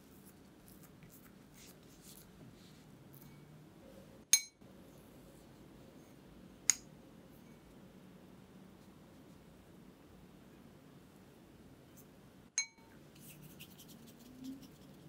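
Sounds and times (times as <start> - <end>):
utensil clinking against bowl: 12.6 - 12.8.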